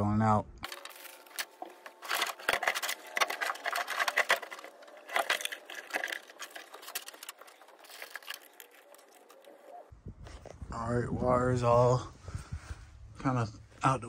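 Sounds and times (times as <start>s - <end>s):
wiring clicking and rattling: 0.6s - 9.9s.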